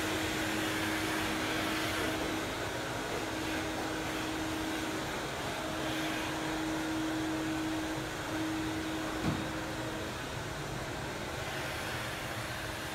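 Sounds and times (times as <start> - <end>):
vacuum cleaner humming: 0.0 - 12.9
thump: 9.2 - 9.5.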